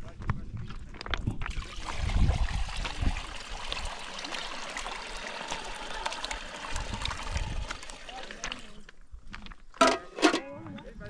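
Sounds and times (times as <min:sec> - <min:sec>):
water trickling: 0:01.4 - 0:08.9.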